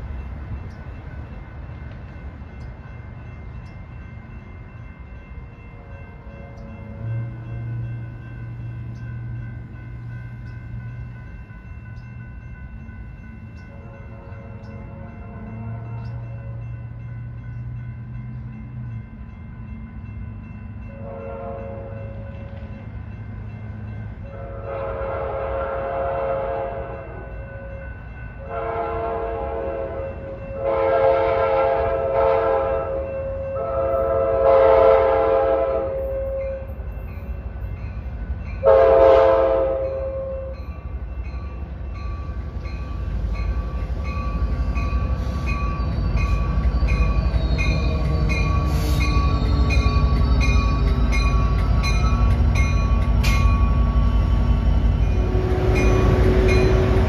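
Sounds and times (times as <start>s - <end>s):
deep rumble of arriving train: 0.0s - 57.0s
grade-crossing bells ringing: 0.0s - 57.0s
locomotive horn blasts: 21.0s - 22.0s, 24.3s - 27.6s, 28.4s - 36.8s, 38.6s - 40.6s.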